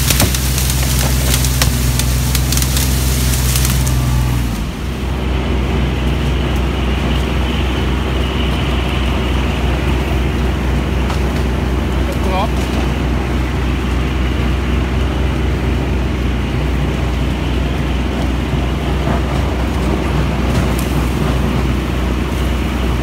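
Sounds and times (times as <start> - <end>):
dry reeds crackling and snapping: 0.0 - 23.0
engine running steadily: 0.0 - 23.0.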